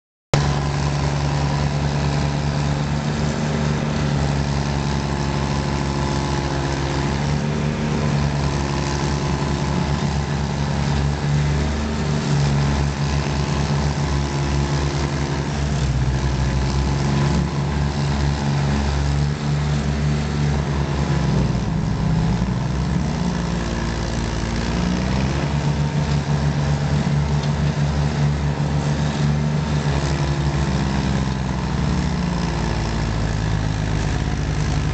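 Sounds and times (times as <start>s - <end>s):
stump grinder grinding wood: 0.4s - 34.9s.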